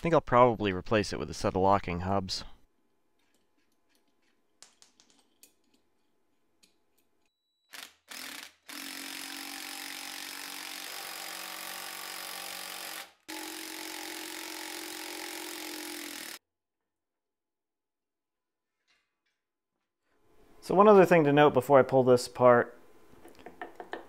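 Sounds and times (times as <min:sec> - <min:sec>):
power tool spinning screw: 0:07.6 - 0:16.4.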